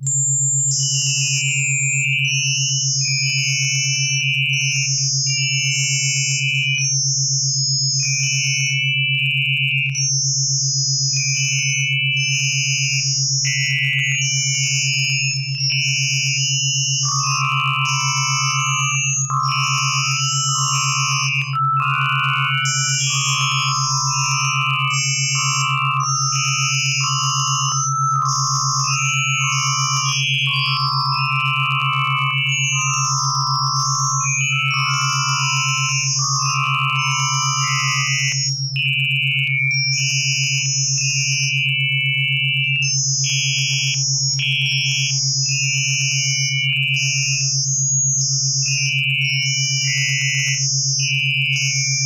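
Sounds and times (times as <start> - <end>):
low buzzing tone: 9.4 - 41.7
electronic tones switching on and off: 17.0 - 39.3.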